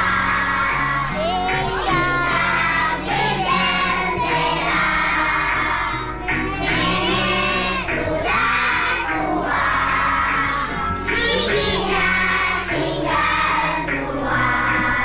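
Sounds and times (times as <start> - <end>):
children singing together: 0.0 - 15.0
music backing track with bass: 0.0 - 15.0.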